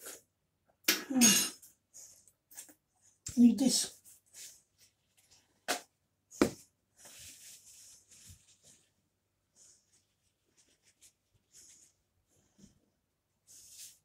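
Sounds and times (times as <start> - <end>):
soft rustling and scraping: 2.0 - 5.6, 6.5 - 14.0.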